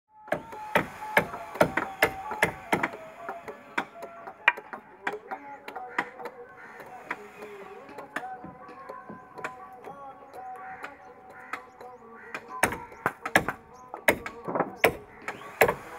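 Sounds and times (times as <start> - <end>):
hammer striking nail into wood: 12.6 - 15.8.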